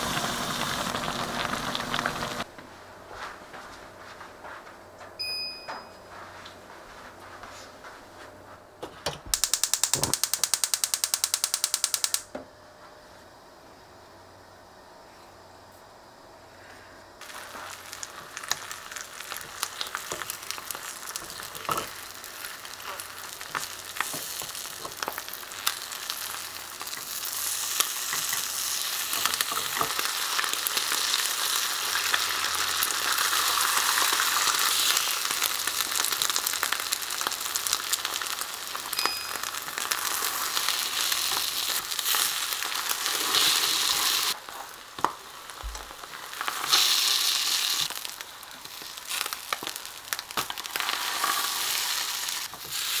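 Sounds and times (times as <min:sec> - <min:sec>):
egg sizzling in frying pan: 0:00.0 - 0:02.5, 0:17.2 - 0:53.0.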